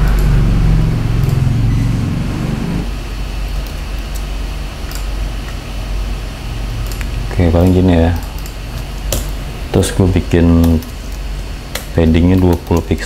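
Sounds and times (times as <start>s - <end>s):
room noise hum: 0.0s - 13.0s.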